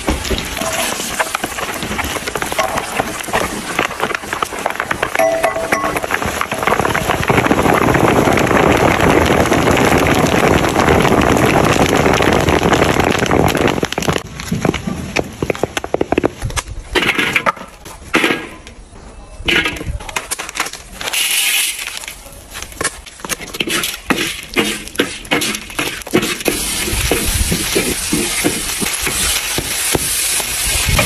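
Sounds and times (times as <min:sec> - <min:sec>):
frying sizzle: 0:00.0 - 0:14.2, 0:23.6 - 0:31.0.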